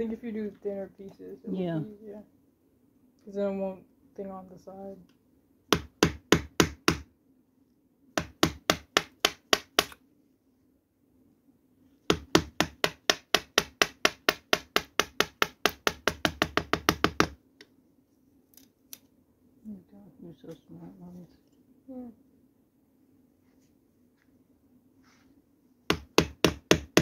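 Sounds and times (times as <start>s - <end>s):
mallet tapping chisel into wood: 5.7s - 7.0s, 8.2s - 10.0s, 12.1s - 17.4s, 25.9s - 27.0s.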